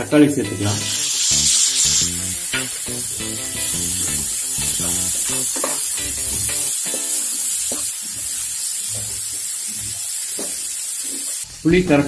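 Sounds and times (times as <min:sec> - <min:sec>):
background music: 0:00.0 - 0:07.7
vegetables sizzling in hot oil: 0:00.0 - 0:12.0.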